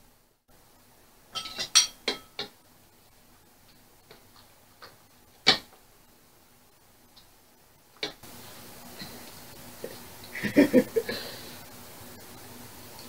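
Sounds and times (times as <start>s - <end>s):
spoon clinking against bowls: 1.4s - 2.5s.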